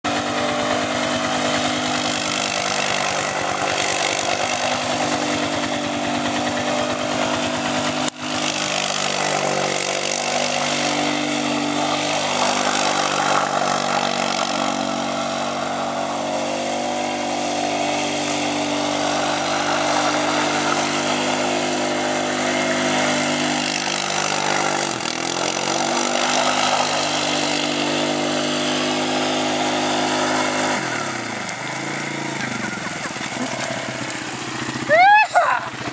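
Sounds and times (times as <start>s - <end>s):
atv engine revving: 0.0s - 35.9s.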